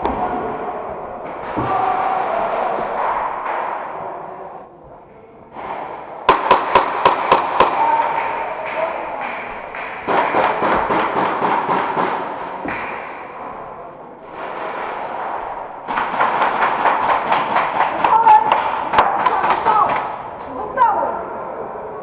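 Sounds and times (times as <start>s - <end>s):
airsoft guns firing bursts: 6.3s - 8.3s, 15.9s - 20.0s.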